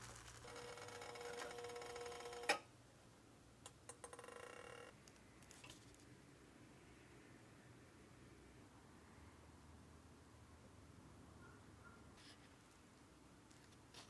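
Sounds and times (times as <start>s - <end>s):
crepe sizzling on hot plate: 0.0s - 0.5s.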